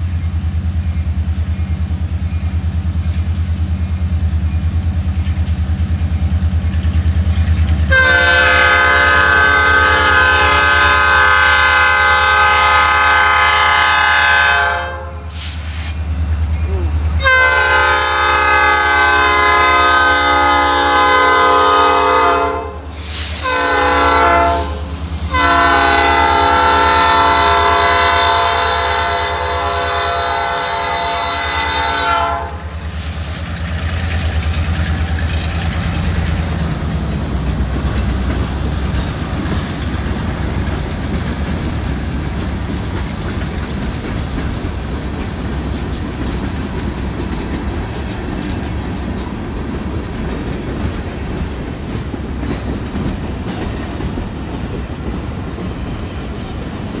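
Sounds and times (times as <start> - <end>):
train rolling past rumbling: 0.0 - 57.0
wheels clicking over rail joints: 0.8 - 8.2, 32.2 - 57.0
locomotive air horn blasts: 7.9 - 15.5, 17.2 - 32.8.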